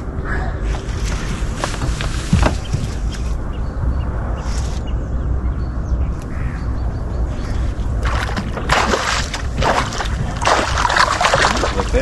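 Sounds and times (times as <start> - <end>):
low wind rumble: 0.0 - 12.0
fish splashing at surface: 8.0 - 12.0.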